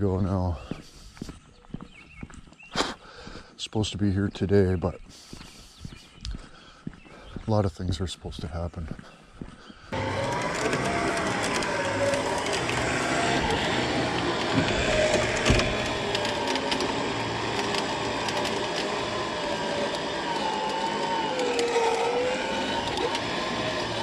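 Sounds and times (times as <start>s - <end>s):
engine running: 9.9s - 24.0s.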